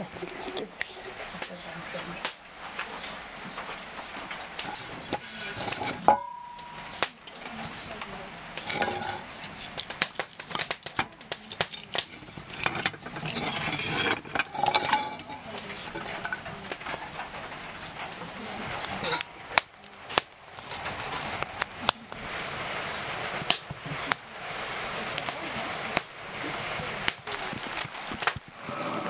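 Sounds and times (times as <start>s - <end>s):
firewood crackling in stove: 0.0s - 29.0s
butter rubbed around pan: 4.6s - 6.1s, 8.6s - 19.3s
frying pan and utensils clinking: 4.6s - 7.9s, 8.6s - 19.8s.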